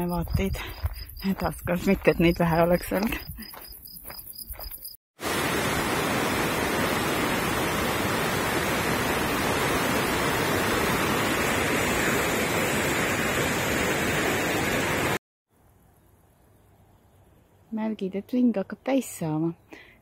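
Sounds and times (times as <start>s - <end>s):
fast-flowing water rushing: 5.2s - 15.2s.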